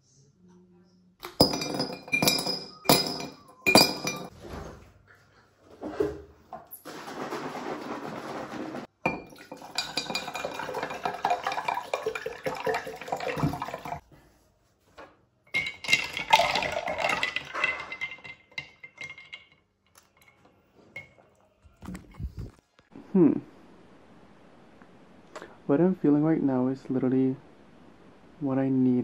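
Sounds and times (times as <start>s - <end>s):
ice clinking against glass: 1.3s - 4.3s, 9.1s - 14.0s, 15.5s - 20.4s
metal spoon stirring in glass jar: 9.1s - 12.6s.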